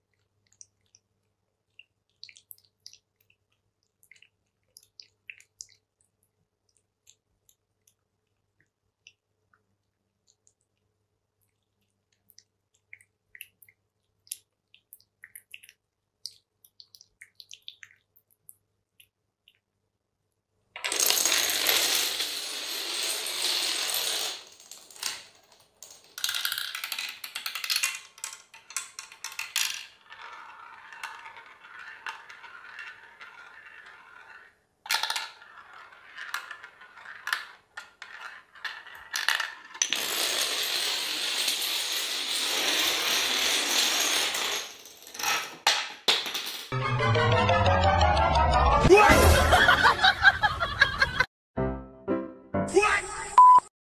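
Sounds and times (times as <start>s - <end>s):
dominoes toppling clatter: 20.8s - 45.5s.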